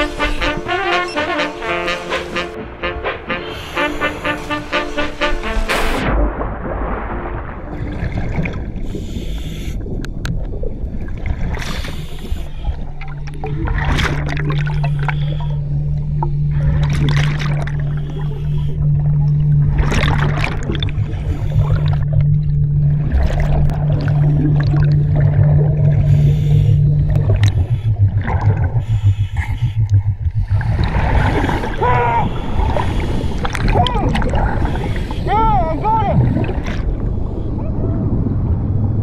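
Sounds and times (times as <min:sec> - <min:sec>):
muffled underwater rumble: 0:00.0 - 0:39.0
hissing bubble bursts: 0:01.7 - 0:12.7, 0:23.0 - 0:35.4
steady low hum: 0:11.9 - 0:39.0.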